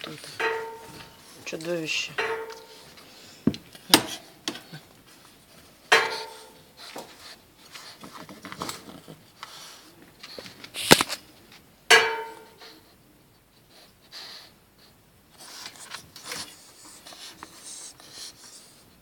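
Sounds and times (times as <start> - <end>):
metallic clanks on wire bars: 0.3 - 1.2, 2.0 - 2.8, 5.9 - 6.6, 11.9 - 12.6.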